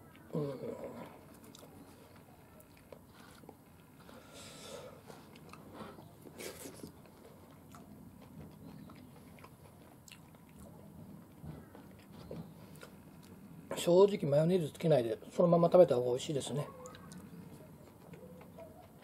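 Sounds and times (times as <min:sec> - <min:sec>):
chewing and crunching fried fish: 0:00.0 - 0:13.7, 0:16.7 - 0:19.0.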